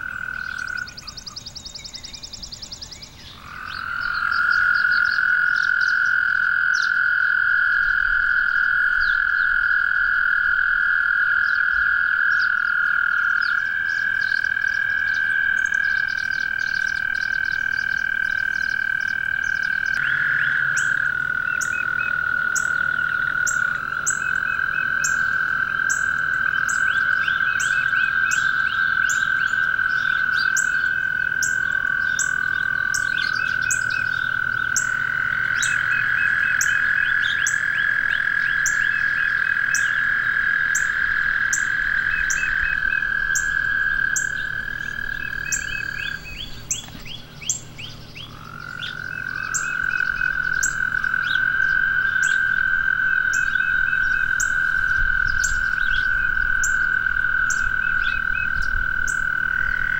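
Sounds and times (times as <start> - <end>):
frog chirps: 0.0 - 59.9
frogs trilling: 0.0 - 59.9.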